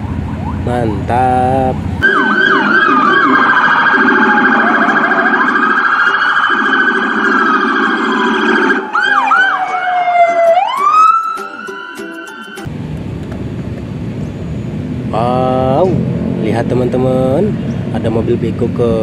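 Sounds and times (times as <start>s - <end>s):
warbling siren tone: 0.0s - 0.8s, 2.0s - 12.7s
yelping siren sweeps: 0.0s - 0.8s, 2.0s - 12.7s
police sirens wailing: 0.0s - 12.7s.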